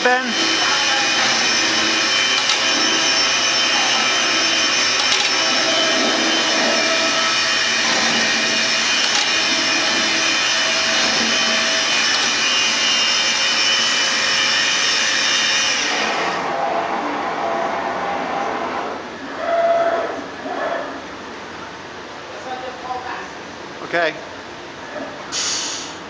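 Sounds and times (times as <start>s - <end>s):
cnc router whining: 0.0s - 19.2s.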